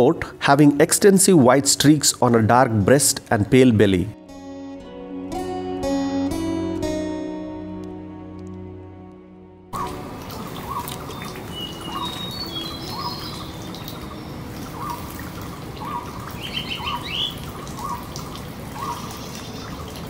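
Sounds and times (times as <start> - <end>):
water trickling and dripping: 9.8 - 20.0
high bird chirps: 10.6 - 15.1, 15.8 - 18.1.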